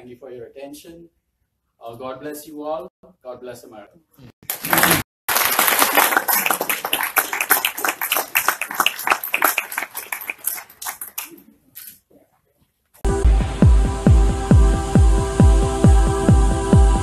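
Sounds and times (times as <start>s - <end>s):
audience applauding: 4.4s - 11.4s
electronic music with steady beat: 13.0s - 17.0s.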